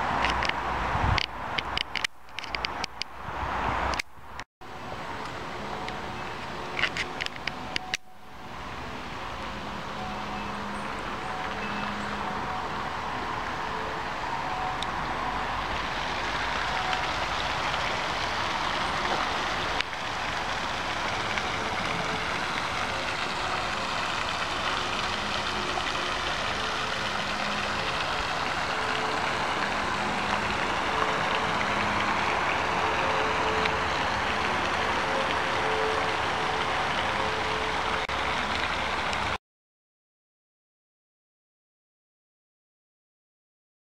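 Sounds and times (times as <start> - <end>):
fountain water splashing: 4.7 - 39.4.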